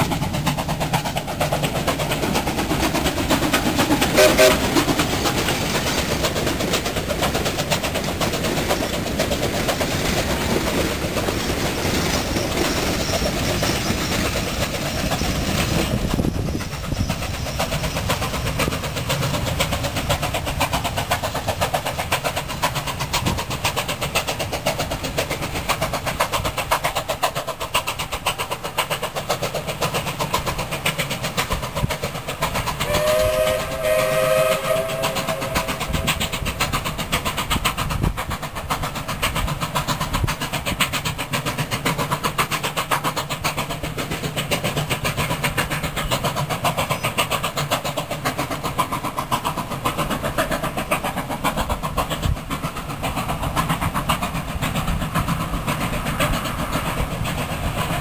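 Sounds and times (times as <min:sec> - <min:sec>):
steam locomotive rapid beat: 0:00.0 - 0:58.0
steam whistle blast: 0:04.1 - 0:04.6, 0:32.8 - 0:36.3.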